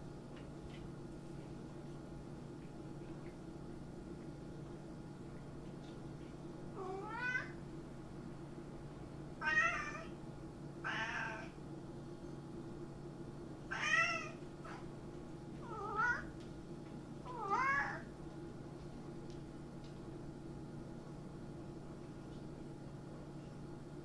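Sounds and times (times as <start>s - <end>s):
cat meowing: 6.8s - 7.6s, 9.4s - 10.1s, 10.8s - 11.5s, 13.7s - 14.8s, 15.6s - 16.3s, 17.3s - 18.1s.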